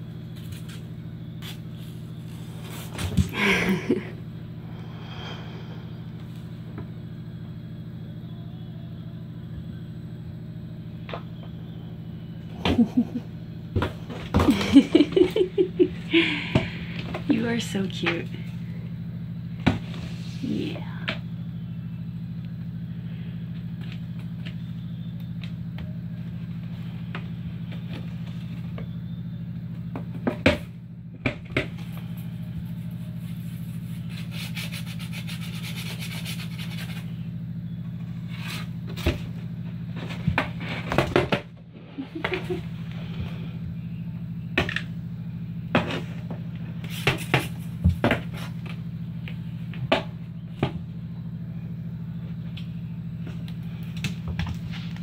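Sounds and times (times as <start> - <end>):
steady low hum: 0.0 - 55.0
scraping on cardboard: 32.8 - 37.1.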